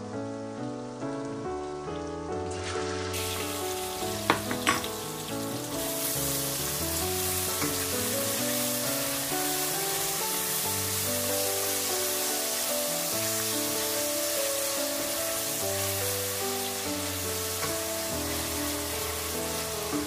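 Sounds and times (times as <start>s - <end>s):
background music: 0.0s - 20.0s
onions sizzling in oil: 0.8s - 20.0s
utensil knocking against pan: 4.2s - 4.9s.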